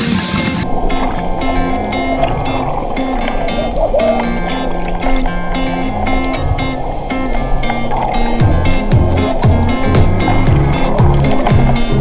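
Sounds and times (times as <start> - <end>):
background music with steady beat: 8.4 - 12.0.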